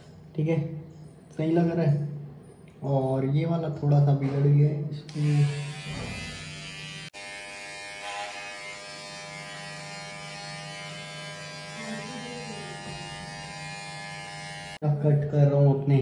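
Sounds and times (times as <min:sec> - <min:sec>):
electric hair trimmer buzzing: 0:05.1 - 0:14.8.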